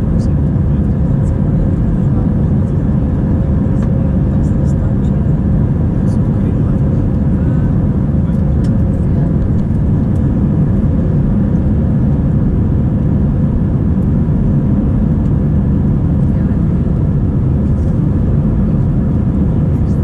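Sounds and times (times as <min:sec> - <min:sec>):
jet engines at climb power: 0:00.0 - 0:20.0.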